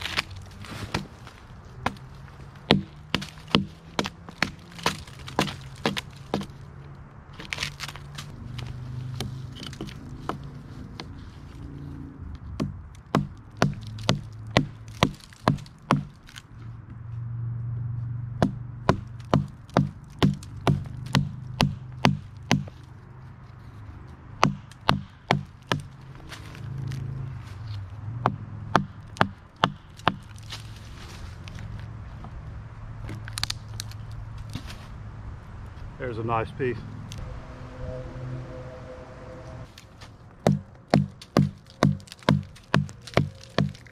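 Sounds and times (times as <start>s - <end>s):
hatchet chopping wood: 0.0s - 6.6s, 9.1s - 11.2s, 12.4s - 16.4s, 18.4s - 22.8s, 24.4s - 26.0s, 28.2s - 30.6s, 40.4s - 43.9s.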